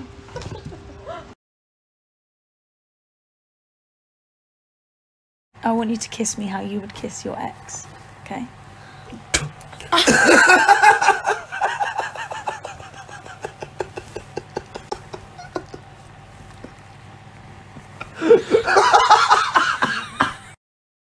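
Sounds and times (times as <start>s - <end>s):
woman laughing hard: 0.3s - 1.4s, 10.0s - 15.9s, 18.1s - 20.6s.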